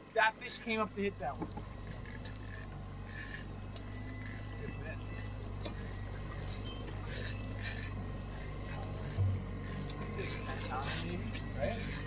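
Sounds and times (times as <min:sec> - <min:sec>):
boat motor hum: 0:00.0 - 0:12.0
fishing reel whirring: 0:01.8 - 0:12.0.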